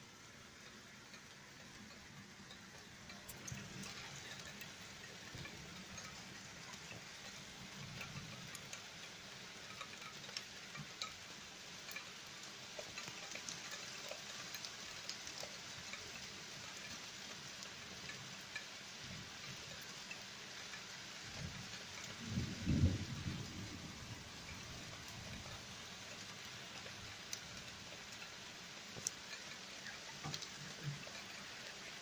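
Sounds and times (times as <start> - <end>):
faint steady rain: 0.0 - 32.0
raindrops ticking: 0.0 - 32.0.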